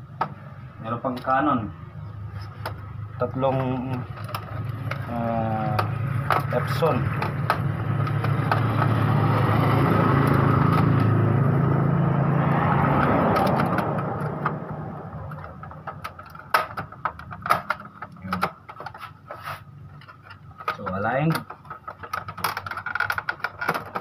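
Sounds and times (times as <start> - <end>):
steady engine drone: 0.0 - 22.6
plastic parts clicking and knocking: 2.4 - 11.2, 12.5 - 24.0.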